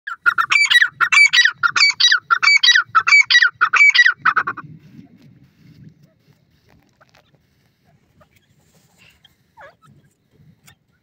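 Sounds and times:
francolin calling: 0:00.1 - 0:04.6.

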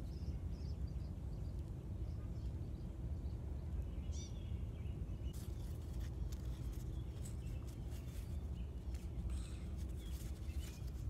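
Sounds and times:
bird chirp: 0:00.0 - 0:11.0
low background rumble: 0:00.0 - 0:11.0
paper crinkling and clicking: 0:05.4 - 0:11.0.

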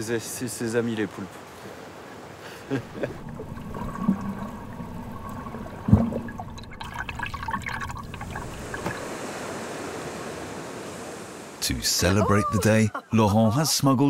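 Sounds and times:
water gurgling underwater: 0:03.0 - 0:09.0.

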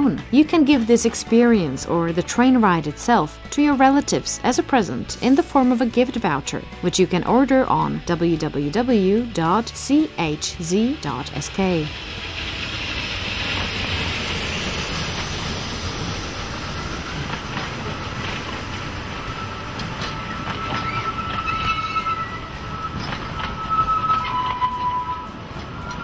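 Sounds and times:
train coaches rolling by: 0:00.2 - 0:26.0
wheels clicking over rail joints: 0:03.4 - 0:26.0
high-pitched wheel squeal: 0:08.8 - 0:26.0
steam hissing: 0:08.8 - 0:26.0.

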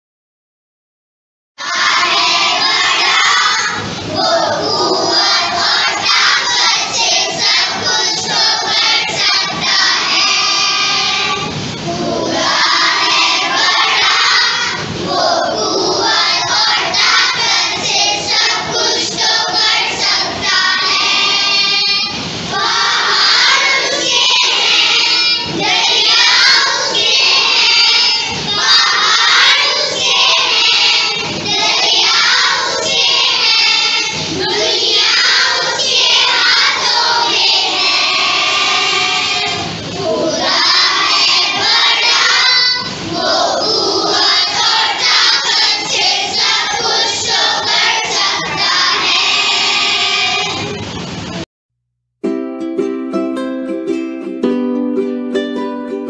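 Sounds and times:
children singing in unison: 0:01.6 - 0:51.1.

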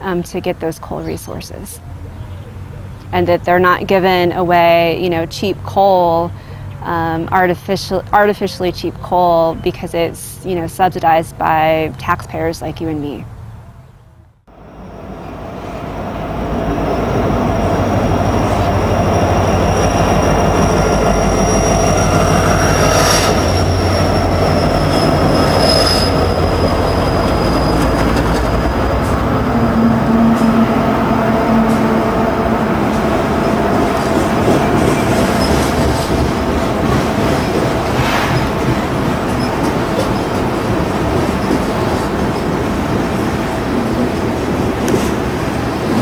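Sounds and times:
train cars rumbling on rails: 0:14.5 - 0:46.0
high wheel squeal: 0:17.4 - 0:36.8.

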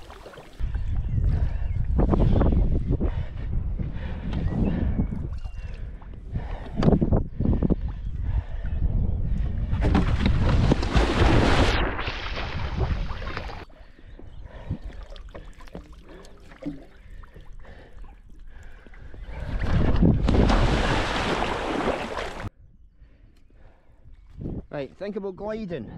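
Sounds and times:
water sounds: 0:00.0 - 0:00.6, 0:09.9 - 0:22.5
wind rushing over microphone: 0:00.6 - 0:13.7, 0:19.1 - 0:23.0, 0:24.0 - 0:24.8.

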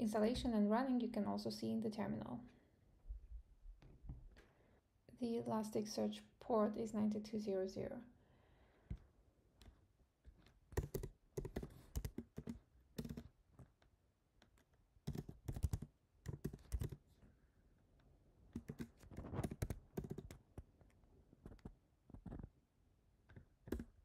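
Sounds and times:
keyboard typing clicks: 0:10.8 - 0:13.3, 0:15.1 - 0:17.0, 0:18.6 - 0:20.4, 0:23.6 - 0:24.0.

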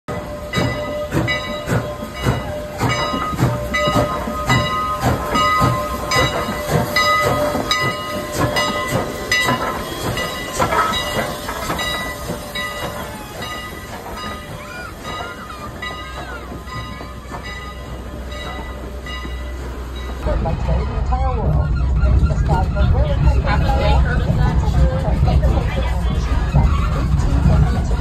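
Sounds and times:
steam hissing: 0:00.1 - 0:20.2
steam locomotive chuffing: 0:00.1 - 0:28.0.

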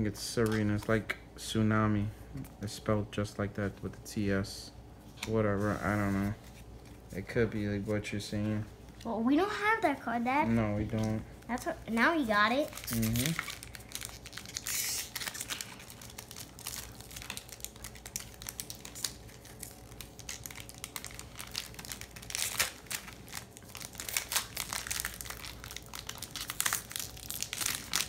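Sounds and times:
foil wrapper crinkling: 0:10.9 - 0:28.0.

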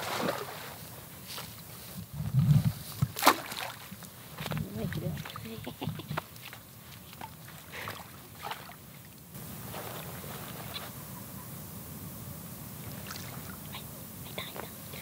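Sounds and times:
net splashing in water: 0:00.0 - 0:00.8, 0:03.1 - 0:04.0, 0:07.1 - 0:08.8
steady outdoor hiss: 0:00.0 - 0:15.0.

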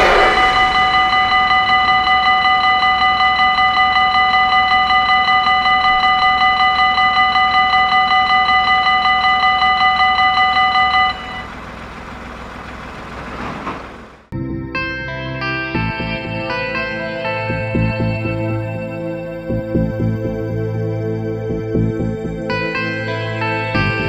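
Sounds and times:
level crossing bell ringing: 0:00.0 - 0:11.5.

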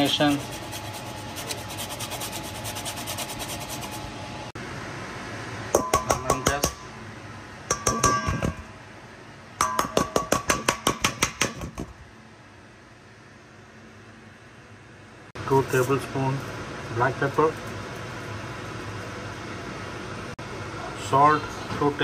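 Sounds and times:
lemon grated on metal grater: 0:00.0 - 0:04.0
grater tapping on metal bowl: 0:05.8 - 0:06.8, 0:07.7 - 0:08.5.

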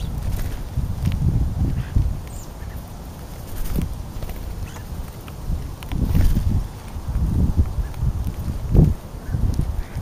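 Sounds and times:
birds pecking and scuffling: 0:00.0 - 0:10.0.

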